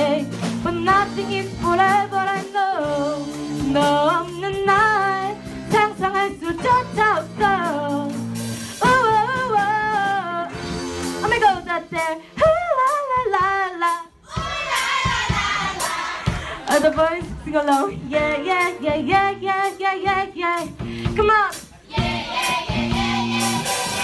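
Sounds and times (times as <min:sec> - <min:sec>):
woman singing into a microphone: 0:00.0 - 0:08.2, 0:08.8 - 0:10.5, 0:11.2 - 0:14.2, 0:16.6 - 0:21.5
drums and cymbals: 0:00.0 - 0:24.0
live band playing: 0:00.0 - 0:24.0.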